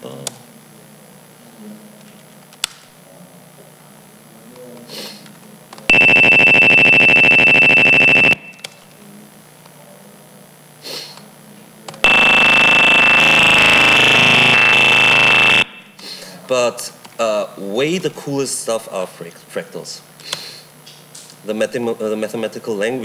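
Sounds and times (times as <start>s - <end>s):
harsh synthetic buzz: 5.9s - 8.6s, 12.0s - 16.0s
steady high whistle: 5.9s - 8.7s.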